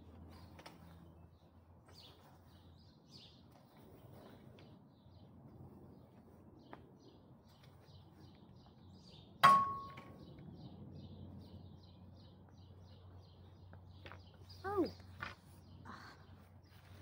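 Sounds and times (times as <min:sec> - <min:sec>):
small bird chirping: 0:06.0 - 0:17.0
metallic clang: 0:09.4 - 0:10.2.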